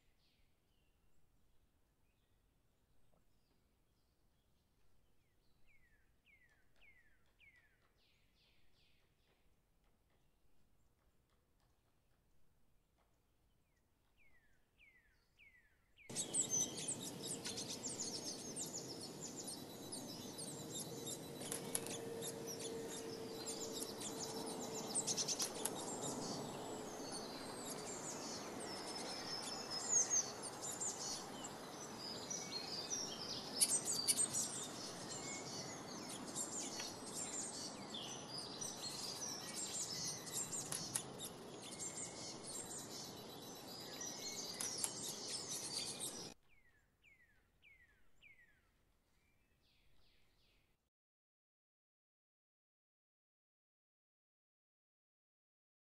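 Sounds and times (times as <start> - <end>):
songbirds chirping: 0.0 - 50.7
outdoor background hiss: 16.1 - 46.3.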